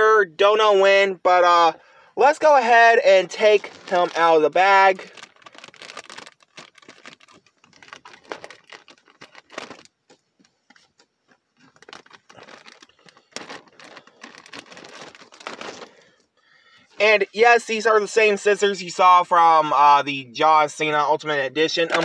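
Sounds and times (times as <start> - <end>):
plastic bag crinkling: 3.1 - 16.2.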